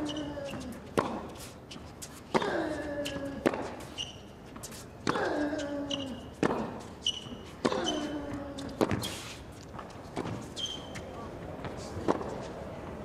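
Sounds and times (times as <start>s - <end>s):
shoe squeaks: 0.0s - 0.7s, 3.0s - 11.2s
racket hitting tennis ball: 0.7s - 1.5s, 6.4s - 10.5s.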